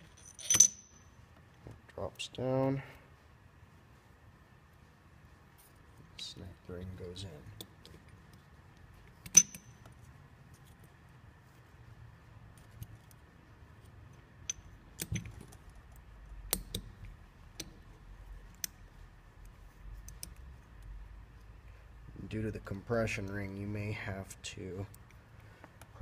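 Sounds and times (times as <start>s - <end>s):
metal ring clicking on metal tube: 9.2s - 9.9s.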